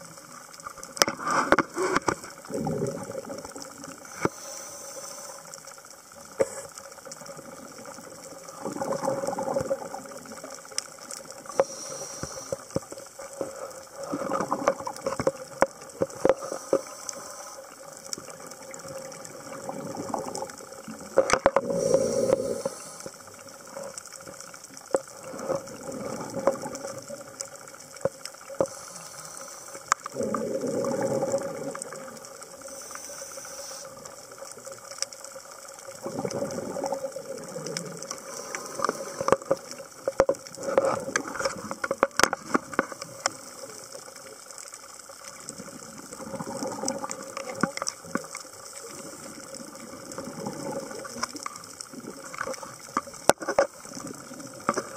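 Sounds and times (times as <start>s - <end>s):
crackle of sharp clicks: 0.0s - 54.9s
exhaled bubbles burbling: 1.2s - 4.3s, 7.1s - 11.6s, 17.8s - 28.7s, 29.9s - 32.7s, 35.8s - 43.3s, 45.3s - 54.9s
diver breathing through regulator: 4.1s - 5.6s, 11.5s - 12.8s, 16.2s - 17.7s, 21.6s - 23.3s, 28.6s - 31.4s, 32.6s - 34.0s, 38.1s - 39.4s.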